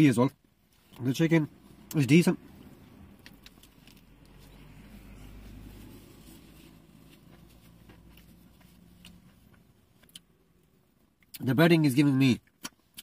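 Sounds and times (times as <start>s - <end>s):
crunching and chewing: 3.2s - 4.6s, 5.8s - 10.3s.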